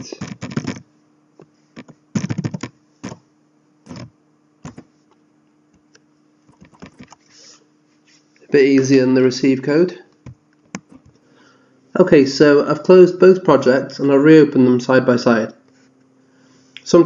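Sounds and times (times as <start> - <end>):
faint steady hum: 0.0 - 17.0
computer keyboard typing: 0.1 - 0.8, 1.8 - 3.2, 3.9 - 4.8, 6.5 - 7.2.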